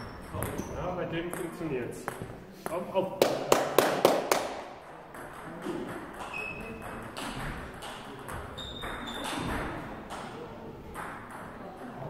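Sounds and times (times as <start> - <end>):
low murmur of hall: 0.0 - 12.0
faint short squeaks: 6.3 - 7.0, 8.6 - 9.6.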